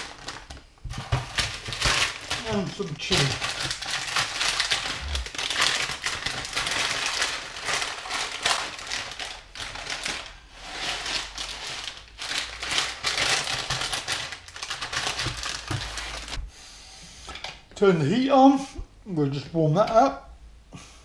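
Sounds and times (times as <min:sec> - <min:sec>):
plastic packet crinkling: 0:00.0 - 0:16.4.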